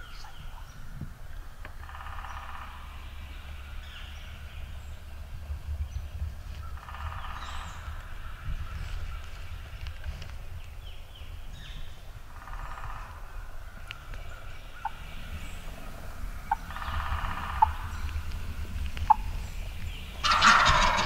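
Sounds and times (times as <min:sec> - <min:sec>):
turkeys gobbling: 0:14.8 - 0:19.4, 0:20.1 - 0:21.0.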